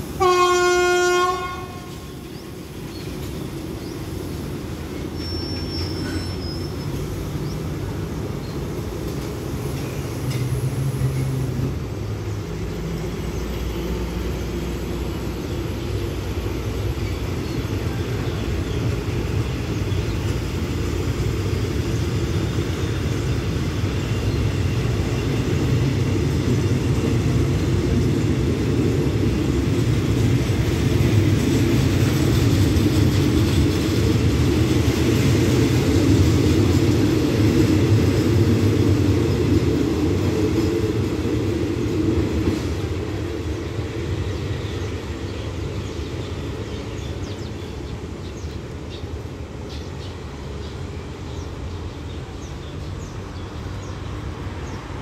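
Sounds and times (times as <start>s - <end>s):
train wheels rumbling on rails: 0.0s - 55.0s
train horn: 0.2s - 2.2s.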